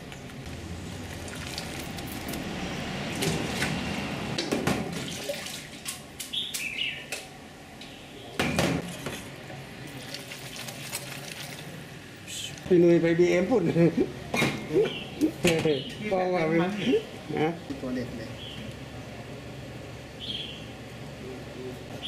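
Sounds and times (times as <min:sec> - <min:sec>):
water sloshing and splashing: 0:04.8 - 0:06.1, 0:09.9 - 0:11.8.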